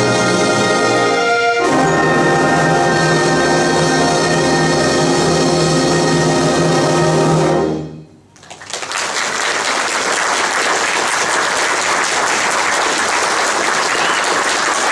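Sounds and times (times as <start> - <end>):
audience applause: 8.4 - 14.9.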